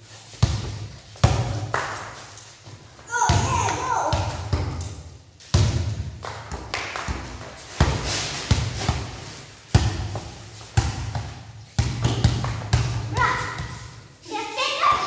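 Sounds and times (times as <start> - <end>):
basketball bouncing on tiled floor: 0.4 - 1.9, 3.3 - 9.1, 9.7 - 13.8.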